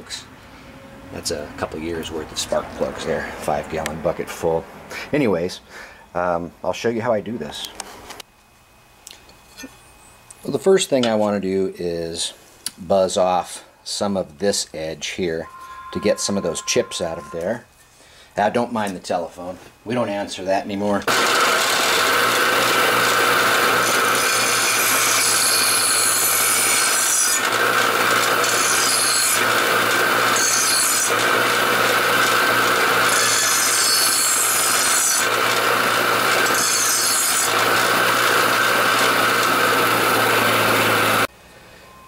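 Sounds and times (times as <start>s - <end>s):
bench grinder humming: 21.1s - 41.3s
blade grinding rasp: 21.1s - 41.3s.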